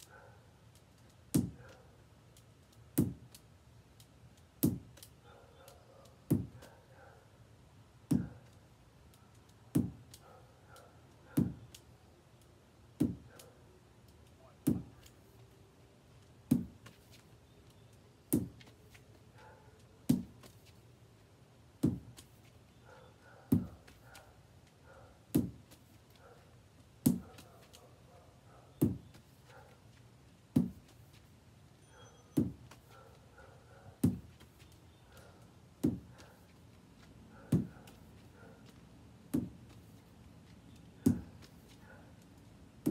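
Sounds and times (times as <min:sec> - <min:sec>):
ball striking a wall: 0:01.3 - 0:01.6, 0:03.0 - 0:03.3, 0:04.6 - 0:05.0, 0:06.2 - 0:06.7, 0:08.1 - 0:08.4, 0:09.7 - 0:10.1, 0:11.4 - 0:11.7, 0:13.0 - 0:13.4, 0:14.6 - 0:15.1, 0:16.5 - 0:17.1, 0:18.3 - 0:18.7, 0:20.1 - 0:20.6, 0:21.8 - 0:22.4, 0:23.5 - 0:24.0, 0:25.3 - 0:25.9, 0:27.0 - 0:27.7, 0:28.8 - 0:29.3, 0:30.5 - 0:31.0, 0:32.4 - 0:32.9, 0:34.0 - 0:34.7, 0:35.8 - 0:36.3, 0:37.5 - 0:40.0, 0:41.0 - 0:41.6.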